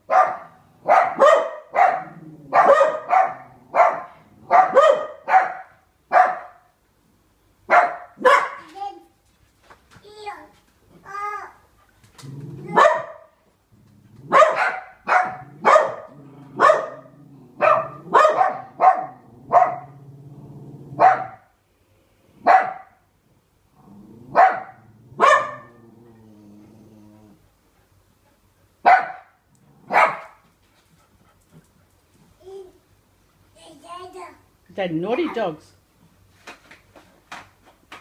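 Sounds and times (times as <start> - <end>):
dog barking: 0.0 - 6.7, 7.7 - 8.7, 12.7 - 13.3, 14.3 - 20.0, 21.0 - 21.5, 22.4 - 23.0, 24.3 - 25.8, 28.8 - 30.4
dog growling: 2.0 - 2.7, 3.3 - 4.5, 12.1 - 12.8, 13.7 - 14.4, 15.3 - 21.0, 23.7 - 27.5.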